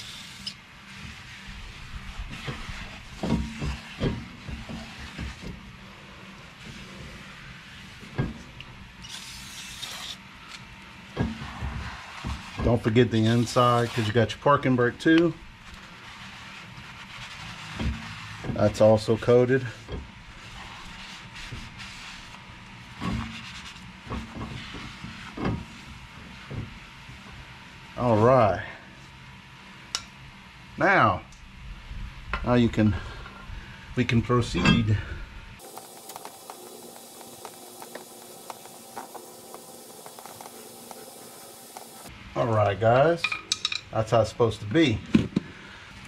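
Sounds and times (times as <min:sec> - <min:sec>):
aerosol spray hissing: 0:00.0 - 0:00.5, 0:35.6 - 0:42.1
knocks and rubbing on brake rotor: 0:02.3 - 0:05.6.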